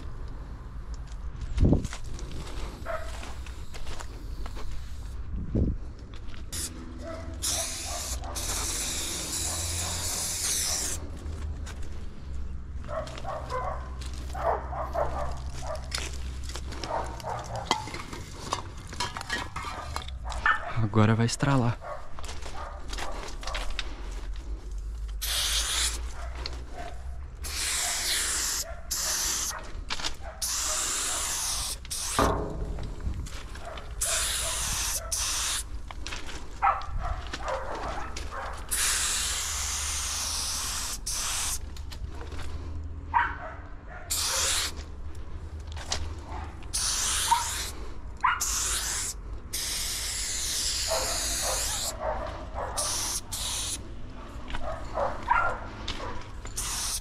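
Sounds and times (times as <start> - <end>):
spray paint can hissing: 6.5 - 11.1, 25.2 - 26.2, 27.4 - 29.6, 30.4 - 32.5, 34.0 - 35.7, 38.6 - 41.7, 44.1 - 44.8, 46.6 - 52.0, 52.8 - 53.8, 56.4 - 57.0.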